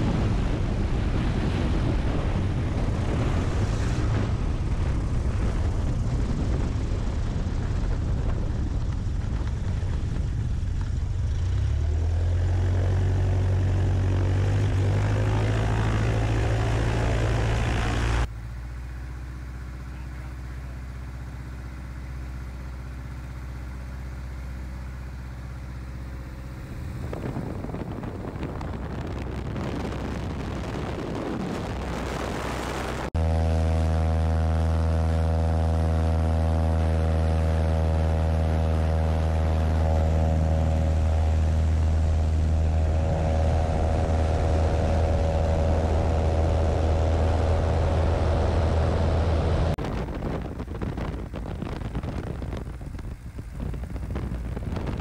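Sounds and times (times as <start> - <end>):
rush of air: 0.0 - 10.7, 36.8 - 55.0
light aircraft engine drone: 0.0 - 55.0.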